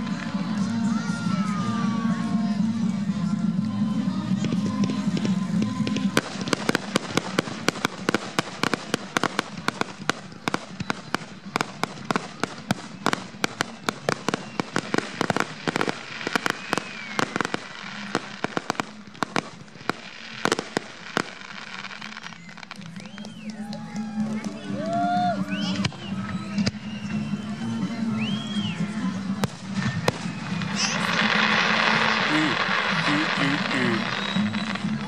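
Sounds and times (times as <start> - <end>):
fireworks bangs and pops: 4.3 - 24.6, 29.3 - 35.0.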